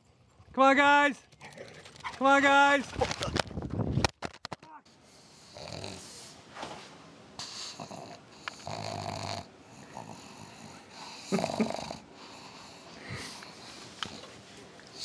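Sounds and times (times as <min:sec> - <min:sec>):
dog breathing noisily: 0:05.0 - 0:06.4, 0:07.4 - 0:15.0.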